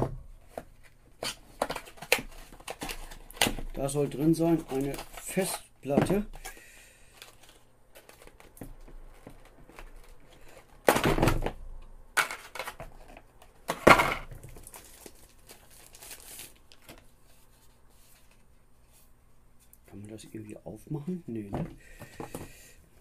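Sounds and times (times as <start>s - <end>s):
packaging rustling: 0.8s - 5.6s, 7.1s - 10.8s, 12.4s - 18.5s
packaging crinkling and tearing: 14.4s - 17.1s.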